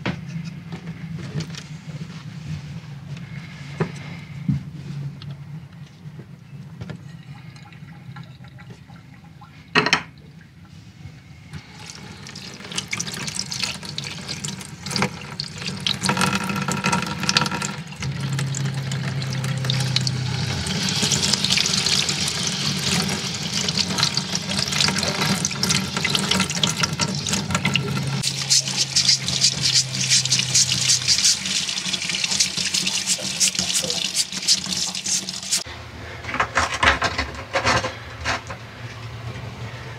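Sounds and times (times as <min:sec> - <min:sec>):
tap water running into sink: 0:11.6 - 0:35.6.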